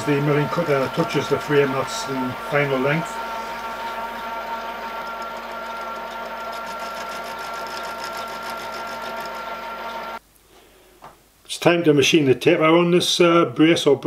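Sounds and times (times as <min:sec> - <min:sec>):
fast even ticking of cutting: 0:00.0 - 0:10.2
milling machine whine: 0:00.0 - 0:10.2.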